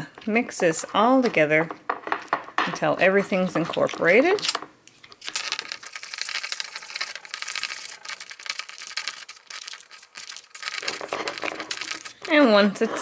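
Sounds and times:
metal spoon scraping ceramic bowl: 4.4s - 12.4s.

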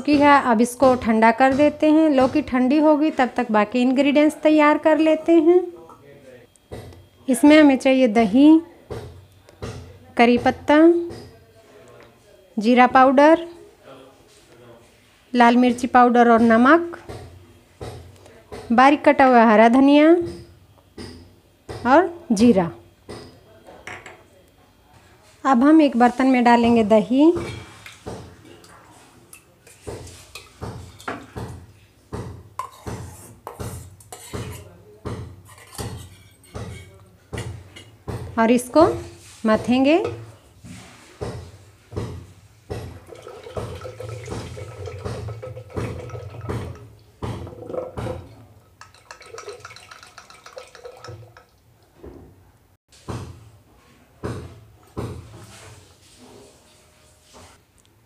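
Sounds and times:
spoon scraping steel bowl: 32.6s - 34.7s, 35.4s - 37.0s, 43.1s - 51.5s
curd sloshing in a churn: 42.9s - 46.8s, 48.8s - 51.4s
spoon tapping: 47.7s - 51.6s.

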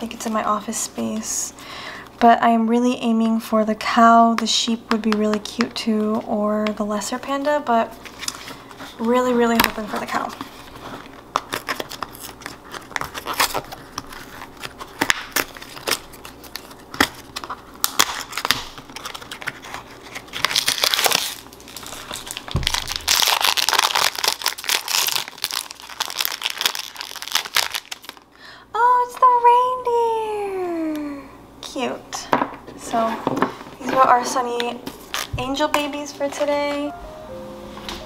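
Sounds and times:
foil wrapper crinkling and tearing: 7.9s - 28.4s, 34.9s - 35.4s.

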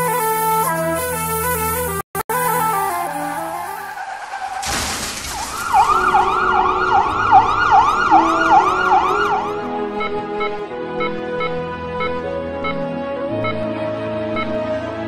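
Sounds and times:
emergency siren wailing: 2.3s - 4.6s, 5.3s - 10.8s
background music: 5.6s - 15.0s.

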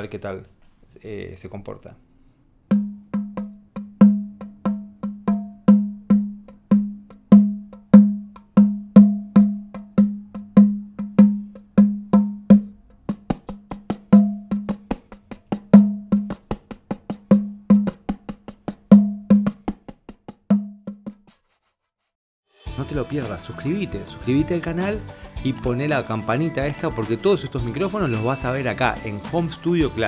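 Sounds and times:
hand drum slaps: 2.7s - 21.3s.

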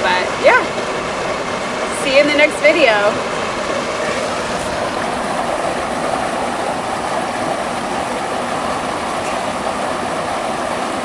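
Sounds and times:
creek water running over rocks: 0.0s - 11.0s.

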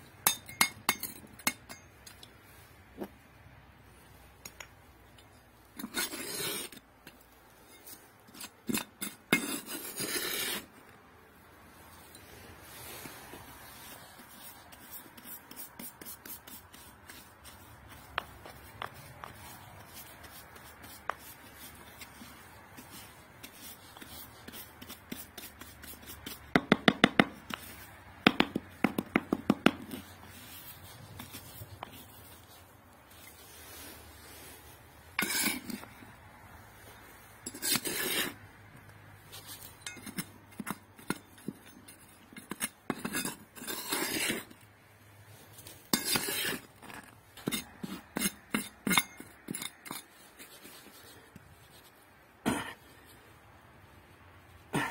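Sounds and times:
metal trowel clinking on stones: 0.2s - 2.3s, 35.2s - 35.9s, 39.6s - 44.0s, 45.9s - 50.1s
brush scraping soil: 5.3s - 26.5s, 27.4s - 28.1s, 29.6s - 54.9s.

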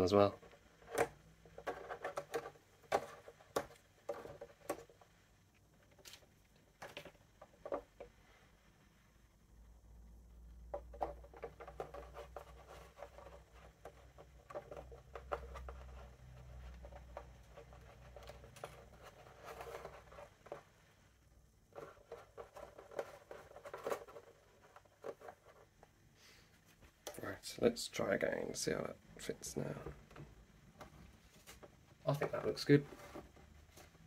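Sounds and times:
rubber seal being handled: 0.0s - 8.2s, 10.6s - 20.8s, 21.7s - 26.0s.

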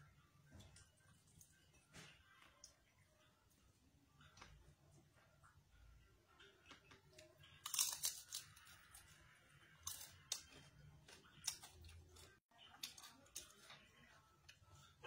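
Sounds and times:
crunching while chewing: 6.6s - 14.9s.

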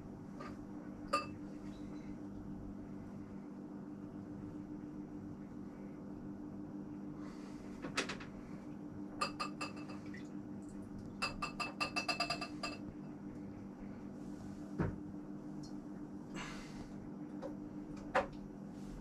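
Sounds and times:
steady low hum: 0.0s - 19.0s
glassware clinking: 1.1s - 1.4s, 9.2s - 10.0s, 11.2s - 12.8s.

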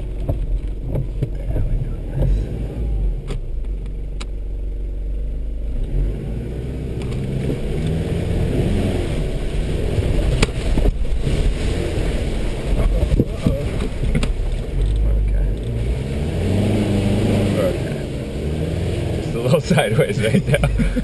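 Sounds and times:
body knocks and rattles: 0.0s - 2.5s, 12.7s - 15.1s
vehicle engine running: 0.0s - 21.0s.

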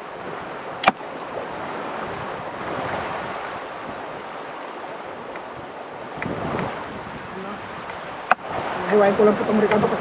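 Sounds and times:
river water flowing: 0.0s - 10.0s.

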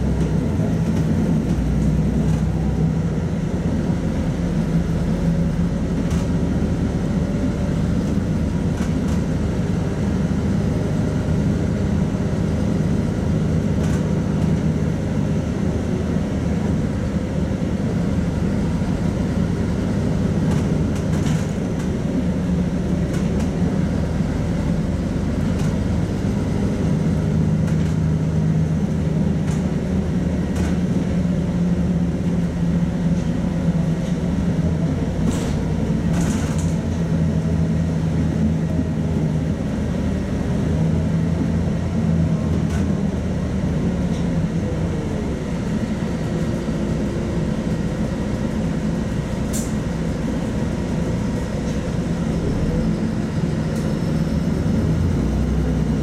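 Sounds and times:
bus engine drone: 0.0s - 56.0s
road and tyre noise: 0.0s - 56.0s
short clicks from bus body: 5.9s - 6.4s, 8.0s - 9.4s, 13.6s - 14.7s, 20.4s - 22.0s, 23.1s - 23.6s, 25.4s - 25.9s, 27.6s - 28.3s, 28.9s - 29.8s, 30.4s - 31.2s, 33.0s - 34.3s, 35.2s - 37.1s, 42.5s - 43.0s, 49.4s - 49.9s, 53.7s - 54.0s.

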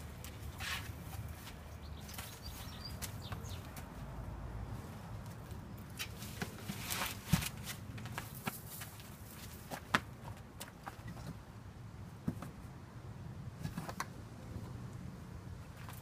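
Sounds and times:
shrub rustling: 0.1s - 4.1s, 4.8s - 10.0s
rustling and scuffing: 0.2s - 4.1s, 4.8s - 11.4s.

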